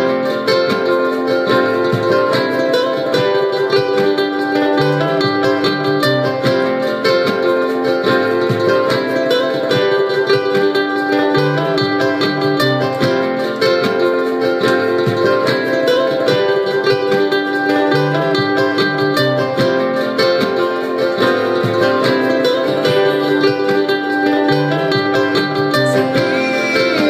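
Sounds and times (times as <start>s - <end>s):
solo acoustic guitar: 0.0s - 27.0s.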